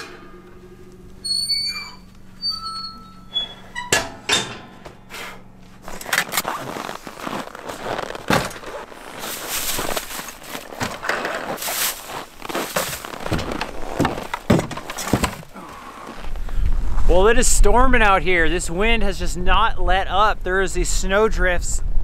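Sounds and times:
boots crunching in snow: 0:05.6 - 0:14.4.

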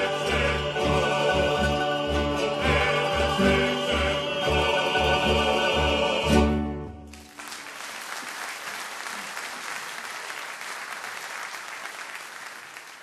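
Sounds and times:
applause: 0:07.1 - 0:13.0.

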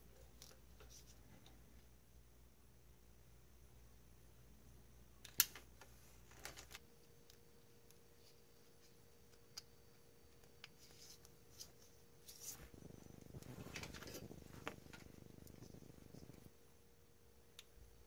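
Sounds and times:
wires and tools handled on bench: 0:00.0 - 0:01.6, 0:05.2 - 0:16.4.

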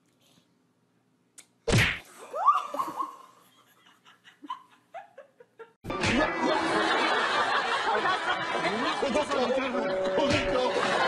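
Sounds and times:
woman laughing: 0:02.2 - 0:05.8
music: 0:05.8 - 0:11.0.

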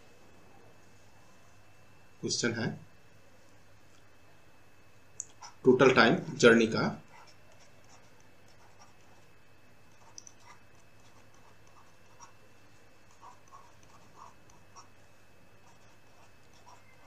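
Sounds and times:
low steady hum: 0:00.0 - 0:17.0
stylus tapping and scratching: 0:05.2 - 0:15.0, 0:15.6 - 0:17.0.

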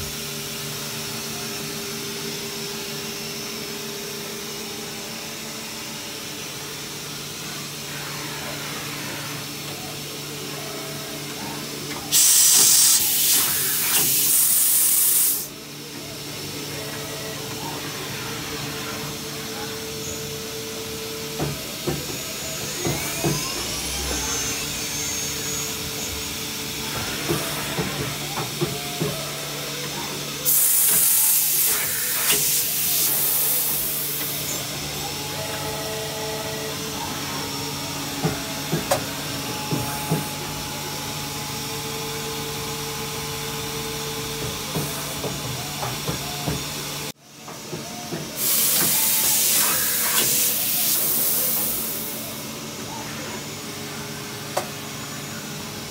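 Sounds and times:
lathe motors humming: 0:00.5 - 0:47.7
loud hissing bursts: 0:12.1 - 0:15.5.

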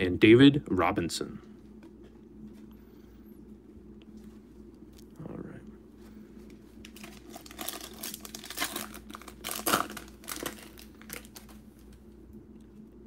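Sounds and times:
foil wrapper crinkling: 0:06.8 - 0:12.0.

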